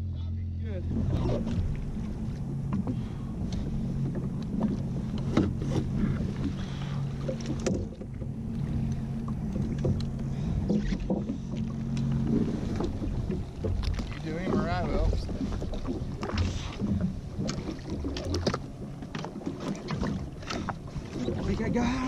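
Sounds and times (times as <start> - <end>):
jet ski engine humming: 0.0 - 22.0.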